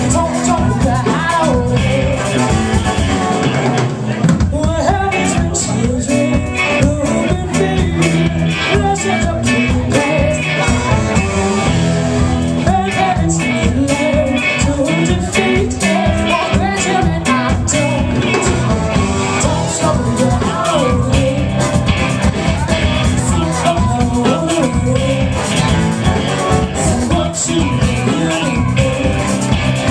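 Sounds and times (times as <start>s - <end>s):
drum beat: 0.0s - 29.9s
electric guitars: 0.0s - 29.9s
live soul-rock band playing: 0.0s - 29.9s
woman singing: 12.6s - 18.6s.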